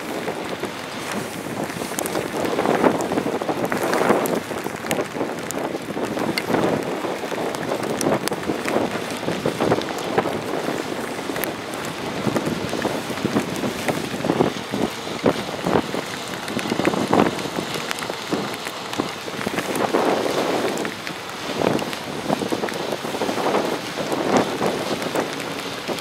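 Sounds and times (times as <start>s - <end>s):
rain pattering: 0.0s - 26.0s
wind gusting on microphone: 0.0s - 26.0s.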